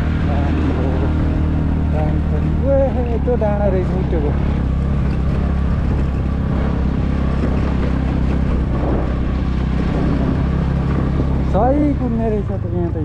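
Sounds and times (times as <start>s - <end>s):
motor scooter engine running: 0.0s - 13.0s
tyre and wind noise: 4.0s - 12.3s.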